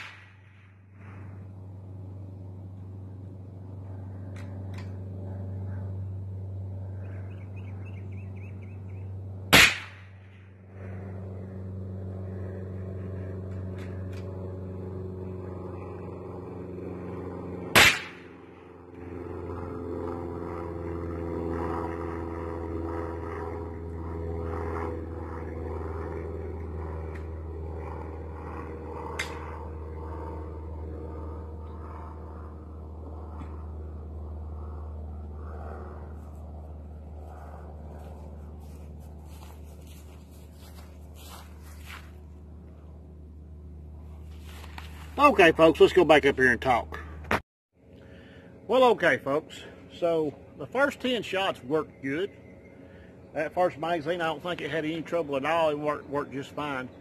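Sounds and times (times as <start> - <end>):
rifle shots: 0.0 - 0.5, 9.5 - 10.2, 17.7 - 18.4
steady low hum: 0.0 - 57.0.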